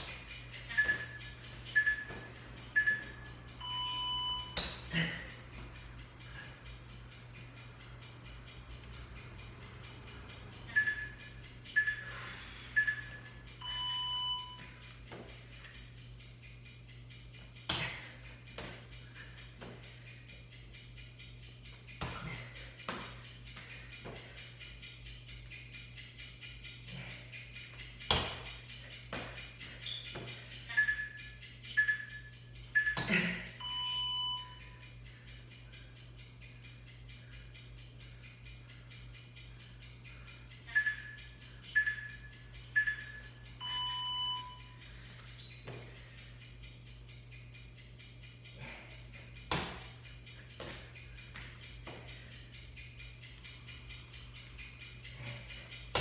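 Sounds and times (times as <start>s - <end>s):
interval timer beeps: 0.0s - 56.0s
long low beep: 0.7s - 4.6s, 10.7s - 14.7s, 30.7s - 34.8s, 40.8s - 44.8s
short high beeps: 0.7s - 4.6s, 12.8s - 14.6s, 30.7s - 34.6s, 41.8s - 44.7s
faint steady ticking: 5.3s - 33.0s, 33.6s - 56.0s.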